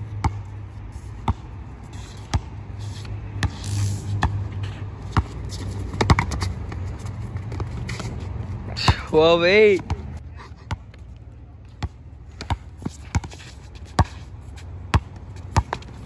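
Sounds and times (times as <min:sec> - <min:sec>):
basketball bouncing on hard court: 0:00.2 - 0:00.5, 0:02.3 - 0:02.5, 0:05.1 - 0:06.8, 0:11.8 - 0:14.2, 0:14.9 - 0:16.0.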